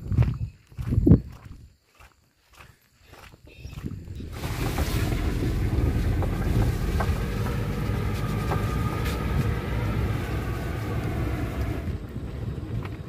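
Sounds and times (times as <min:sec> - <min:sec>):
vehicle rolling on wet road: 0:04.1 - 0:13.0.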